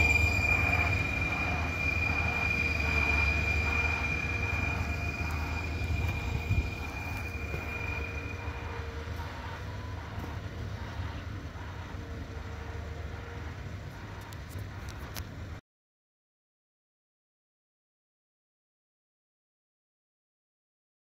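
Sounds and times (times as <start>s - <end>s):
high whine: 0.0s - 15.2s
excavator engine rumble: 0.0s - 15.6s.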